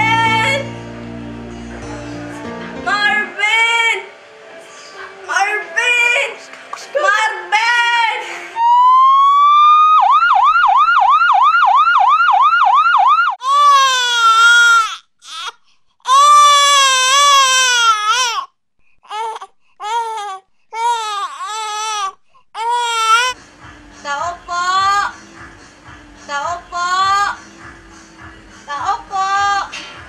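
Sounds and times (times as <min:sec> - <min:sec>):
emergency siren yelping: 0:08.6 - 0:13.4
baby crying: 0:13.4 - 0:23.4.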